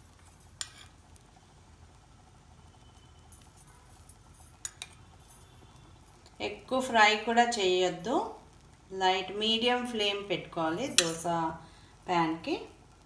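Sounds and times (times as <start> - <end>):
batter sizzling in oil: 0.0 - 13.0
small clinks: 3.0 - 5.6.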